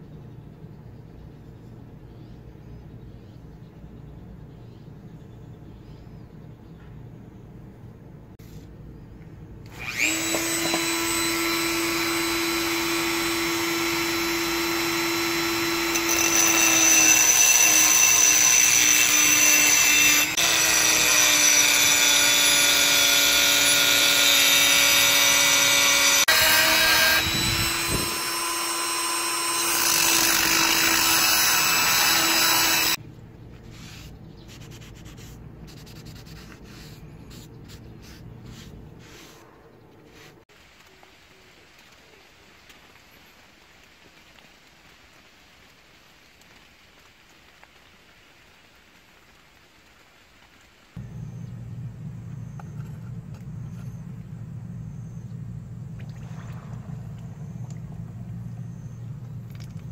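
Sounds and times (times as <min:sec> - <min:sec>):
rotary tool grinding steel: 0:09.7 - 0:33.0.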